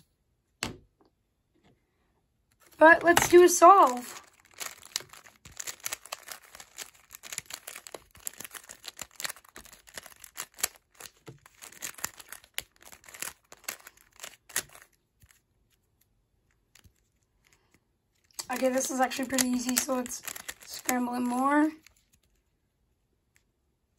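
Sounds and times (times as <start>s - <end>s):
rapid plastic clicks of speed cube: 3.0s - 15.4s, 18.4s - 22.3s.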